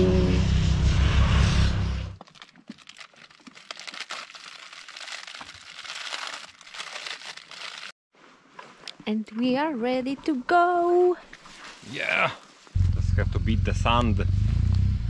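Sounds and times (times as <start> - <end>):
plastic bags crinkling: 2.2 - 8.0
motorcycle engine passing: 12.8 - 15.0.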